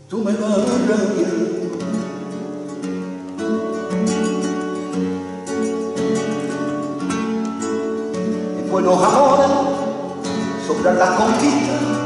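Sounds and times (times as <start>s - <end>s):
flamenco guitars playing: 0.0s - 12.0s.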